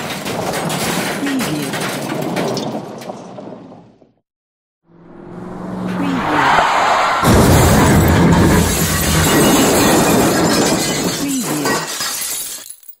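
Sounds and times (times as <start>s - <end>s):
metal crunching: 0.0s - 3.6s, 7.1s - 13.0s
braking skid: 4.9s - 10.6s
heavy crash impact: 7.1s - 12.3s
glass shattering: 7.2s - 13.0s.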